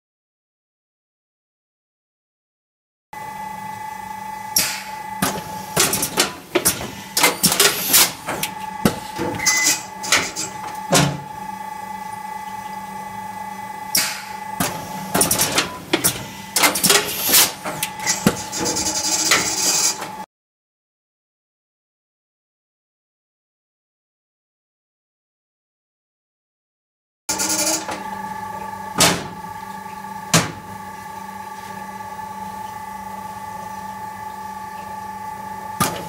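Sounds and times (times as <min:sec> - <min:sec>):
machine hum: 0:03.2 - 0:20.3, 0:27.3 - 0:36.0.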